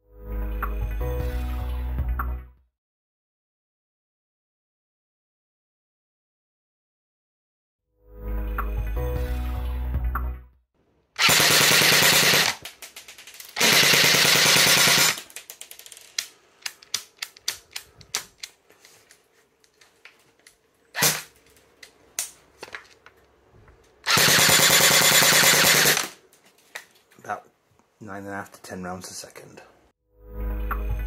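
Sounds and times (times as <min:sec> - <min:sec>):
airsoft rifle full-auto bursts: 0:11.2 - 0:12.7, 0:13.6 - 0:15.3, 0:24.0 - 0:26.2
scattered clicks: 0:12.2 - 0:18.6.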